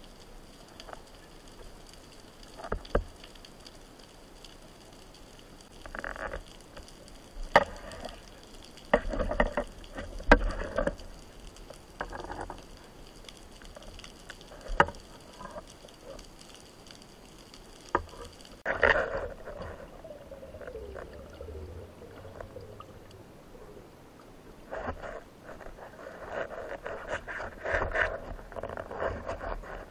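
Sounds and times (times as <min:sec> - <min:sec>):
underwater bubbling: 0:00.0 - 0:29.9
underwater clicks and knocks: 0:02.5 - 0:03.4, 0:05.8 - 0:12.8, 0:13.6 - 0:16.3, 0:17.8 - 0:23.2.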